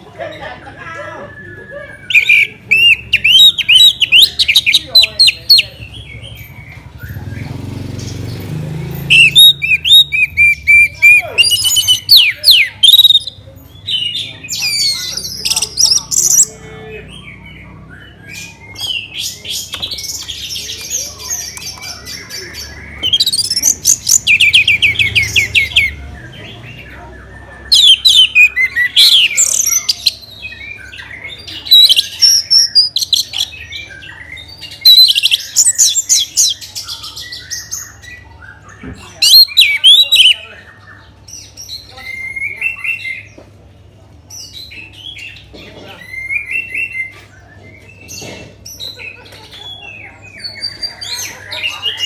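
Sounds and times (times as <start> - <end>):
thrush singing whistled phrases: 9.0 - 13.4, 27.3 - 38.0, 39.2 - 40.4.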